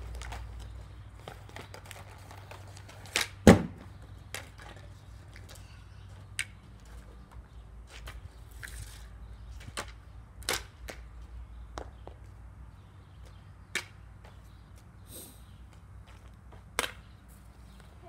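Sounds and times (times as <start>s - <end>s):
hockey stick tapping on asphalt: 9.6s - 12.3s, 13.2s - 14.5s, 16.0s - 17.1s.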